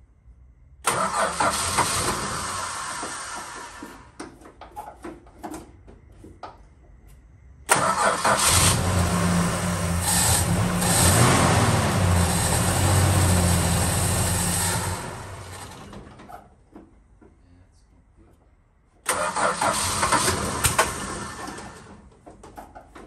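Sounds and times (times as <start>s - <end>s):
car engine starting and revving: 0.8s - 3.8s, 7.7s - 16.1s, 19.1s - 21.9s.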